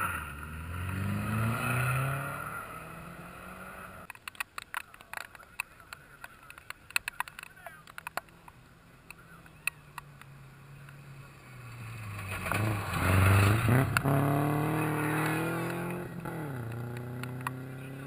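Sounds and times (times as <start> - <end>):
rally car engine passing by: 0.0 - 4.1, 10.3 - 18.0.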